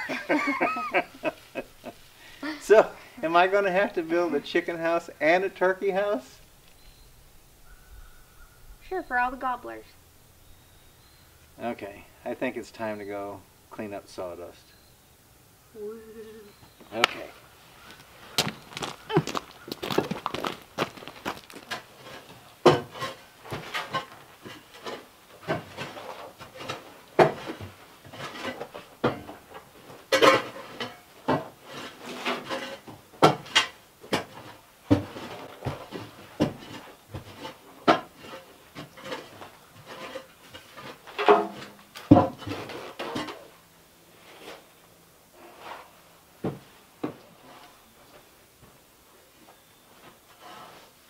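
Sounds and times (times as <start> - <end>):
shovel scraping sawdust: 36.7 - 41.0.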